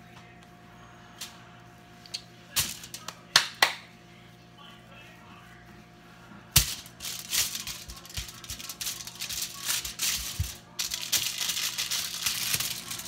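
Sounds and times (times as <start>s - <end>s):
dry rattling crinkling handling: 6.6s - 13.0s.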